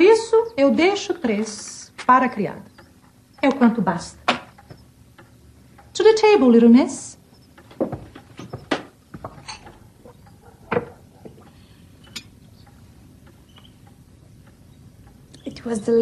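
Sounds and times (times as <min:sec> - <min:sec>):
china and cutlery knocking: 0:08.7 - 0:09.8.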